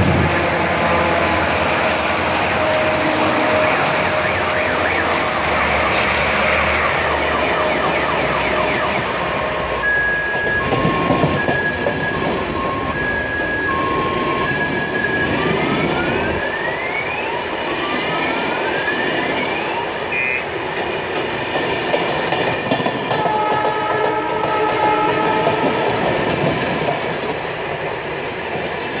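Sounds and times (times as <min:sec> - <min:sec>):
two-tone siren: 0:01.9 - 0:20.6
train wheels clattering: 0:20.7 - 0:27.8.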